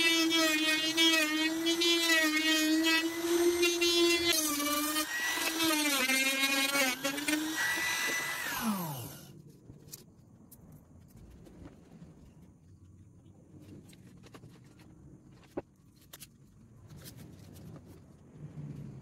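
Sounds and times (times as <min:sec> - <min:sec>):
router whining: 0:00.0 - 0:09.4
motor winding down: 0:03.0 - 0:09.3.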